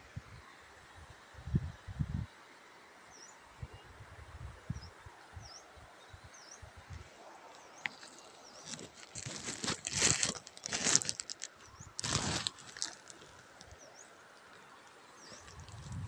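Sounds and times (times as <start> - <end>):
crinkly rustling and crunching: 7.5 - 16.0.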